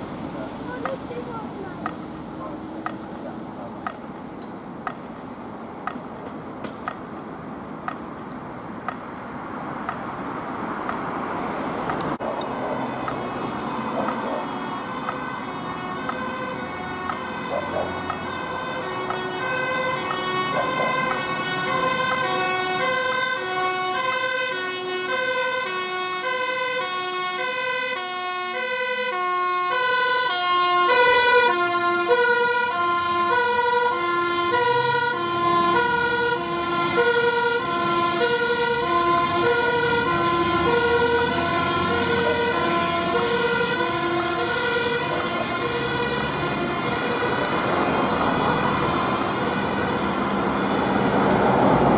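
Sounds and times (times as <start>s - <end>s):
truck engine: 0.0s - 51.9s
two-tone fire engine siren: 11.6s - 51.9s.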